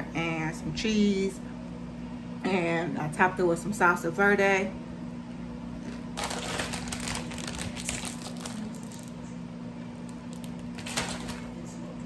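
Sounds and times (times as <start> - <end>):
air conditioner humming: 0.0 - 12.0
plastic chip bag crinkling: 5.8 - 9.2, 10.1 - 11.5.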